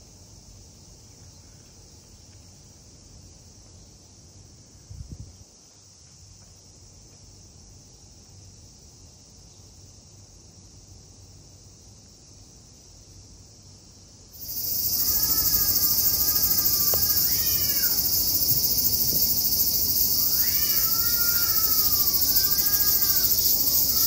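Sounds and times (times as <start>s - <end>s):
cicada drone: 0.0s - 24.0s
cat meowing: 15.0s - 18.1s, 20.2s - 24.0s.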